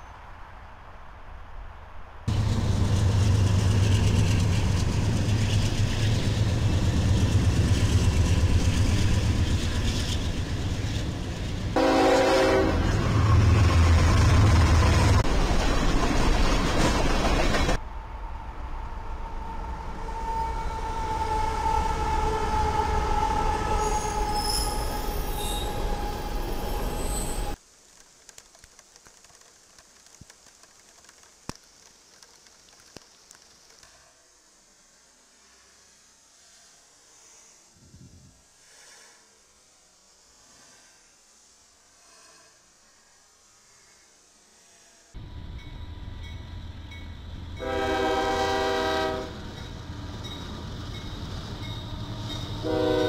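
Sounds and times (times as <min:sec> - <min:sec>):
outdoor ambience hiss: 0:00.0 - 0:53.0
passing train rumble: 0:02.3 - 0:27.6, 0:45.1 - 0:53.0
locomotive air horn blast: 0:11.8 - 0:13.6, 0:47.6 - 0:49.6, 0:52.6 - 0:53.0
small ticks and clicks: 0:27.8 - 0:34.1.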